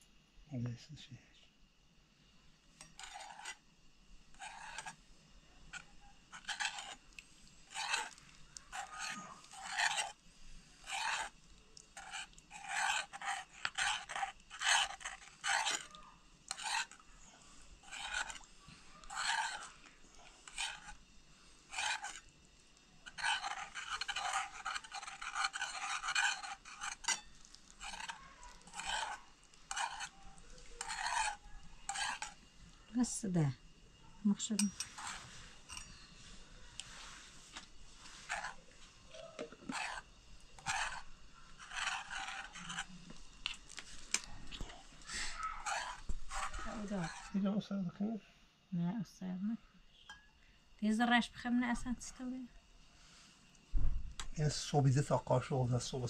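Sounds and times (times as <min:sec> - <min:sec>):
scraping strokes: 0:02.8 - 0:03.6, 0:04.3 - 0:05.0, 0:05.7 - 0:21.0, 0:21.7 - 0:22.3, 0:23.0 - 0:32.4, 0:34.6 - 0:47.3.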